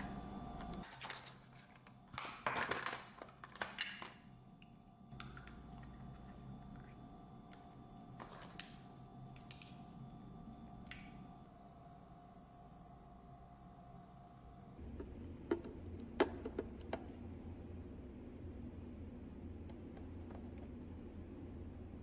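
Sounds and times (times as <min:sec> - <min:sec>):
faint steady hum: 0:00.0 - 0:22.0
plastic packaging crinkling: 0:00.8 - 0:04.3.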